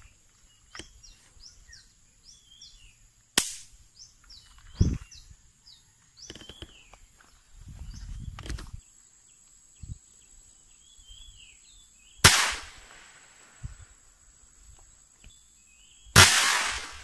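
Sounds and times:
faint birds chirping: 0:00.0 - 0:17.0.

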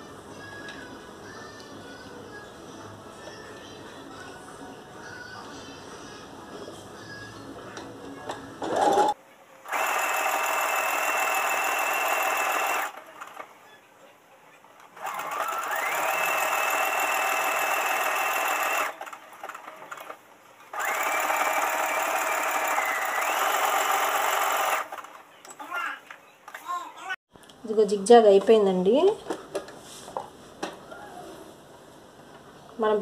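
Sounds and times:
sewing machine stitching: 0:08.6 - 0:13.5, 0:15.0 - 0:25.2.

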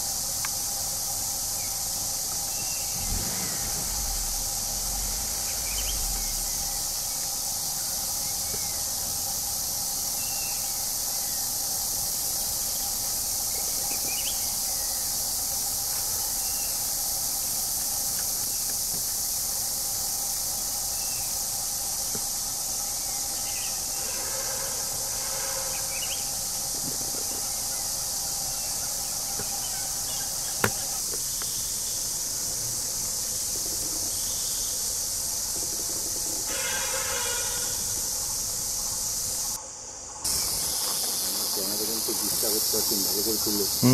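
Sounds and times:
insects chorus: 0:00.0 - 0:43.9
faint bird chirps: 0:02.4 - 0:09.0, 0:13.5 - 0:15.2.

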